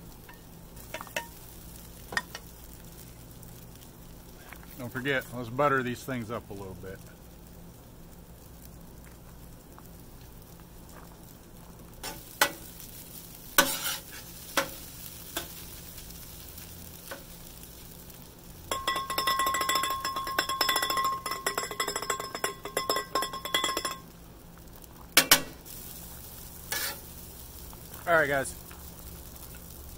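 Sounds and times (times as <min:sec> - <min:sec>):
rice sizzling: 0:00.0 - 0:29.9
metal spatula clacking on griddle: 0:12.0 - 0:12.7, 0:13.6 - 0:15.6, 0:18.7 - 0:24.1, 0:25.2 - 0:25.6, 0:26.7 - 0:27.0.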